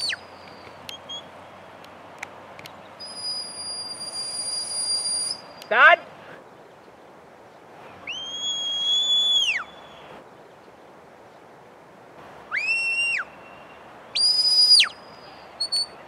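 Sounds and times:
shepherd's whistle: 0:03.0 - 0:05.7, 0:08.0 - 0:10.1, 0:12.5 - 0:16.0.

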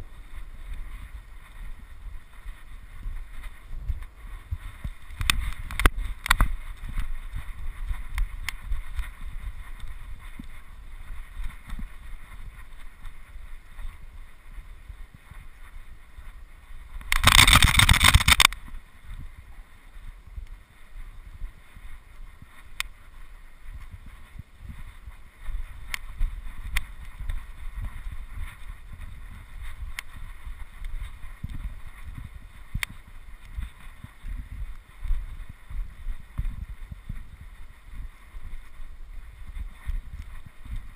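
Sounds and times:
wind rumbling on microphone: 0:00.0 - 0:40.9
loud rush of noise: 0:17.1 - 0:18.5.

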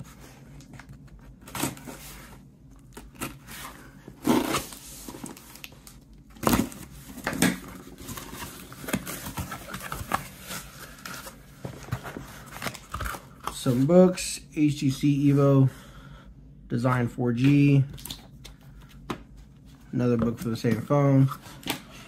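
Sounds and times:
cardboard flaps rustling and scraping: 0:00.0 - 0:13.9.

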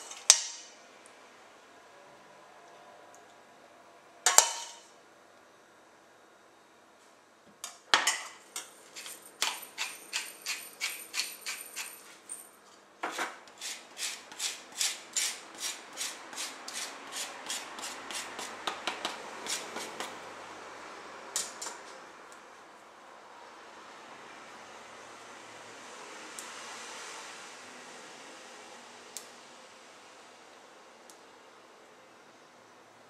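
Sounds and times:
lime scraping on rasp grater: 0:08.9 - 0:12.1, 0:13.5 - 0:20.1.

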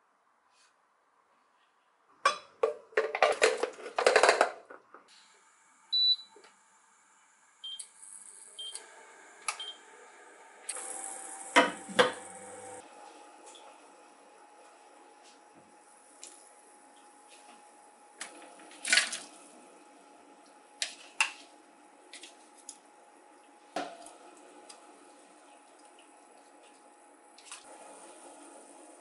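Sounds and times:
cooktop beeping: 0:05.9 - 0:06.5.

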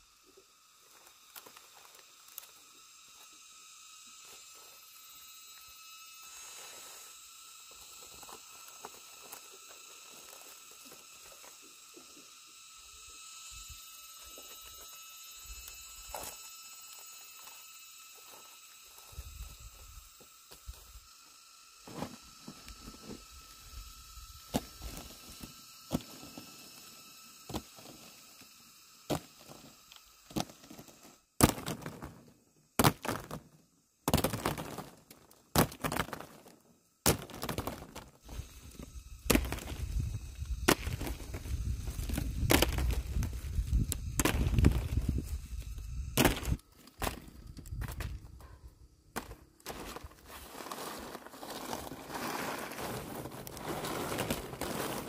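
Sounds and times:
dried corn cobs clattering: 0:34.1 - 0:55.0.

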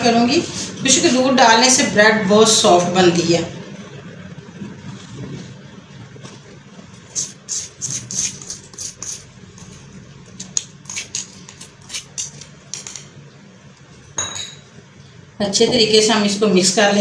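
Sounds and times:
glass bowl clinking: 0:14.2 - 0:14.7.

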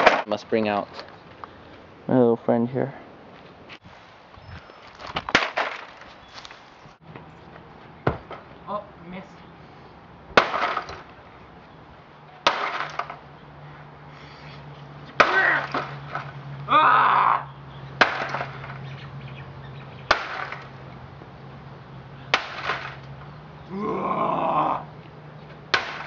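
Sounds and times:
keyboard being smashed: 0:05.1 - 0:06.0, 0:12.4 - 0:13.2, 0:18.0 - 0:18.8
person shouting: 0:15.2 - 0:15.7, 0:16.7 - 0:17.5, 0:23.7 - 0:24.9.

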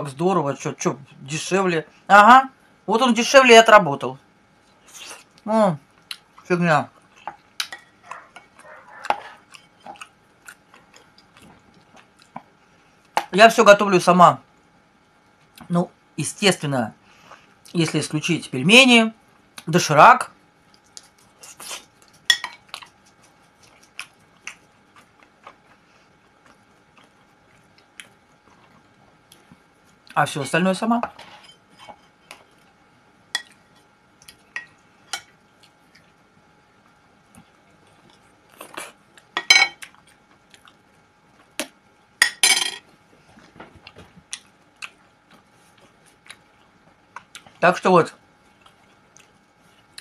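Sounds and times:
person chewing food: 0:06.0 - 0:06.4, 0:07.0 - 0:13.3, 0:20.6 - 0:30.2, 0:33.4 - 0:41.8, 0:42.9 - 0:47.6, 0:48.3 - 0:50.0.

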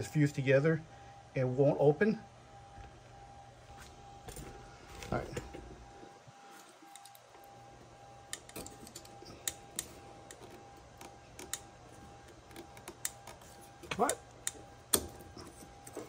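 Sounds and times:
clicks and taps of handled wires: 0:12.3 - 0:15.2.

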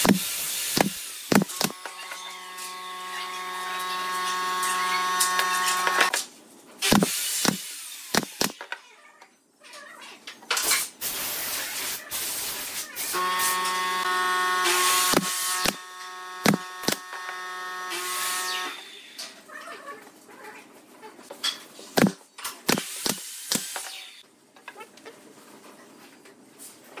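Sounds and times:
nail gun firing: 0:00.0 - 0:01.8, 0:06.8 - 0:08.6, 0:14.8 - 0:15.8, 0:16.4 - 0:17.1, 0:22.0 - 0:23.9.

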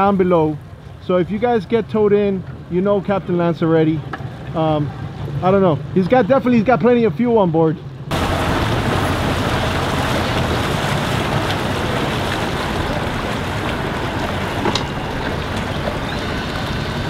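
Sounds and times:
outboard motor idling: 0:08.0 - 0:17.0.

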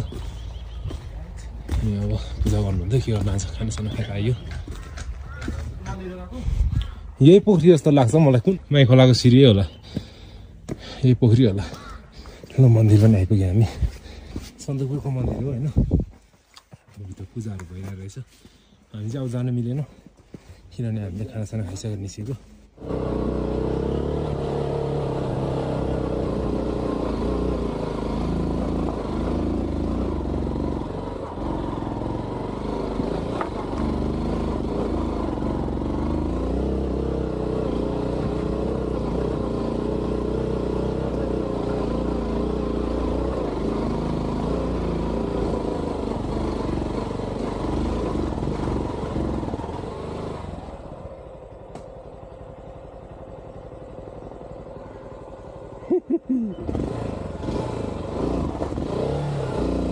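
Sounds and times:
motorcycle engine running: 0:00.0 - 0:07.1, 0:21.0 - 0:59.9.

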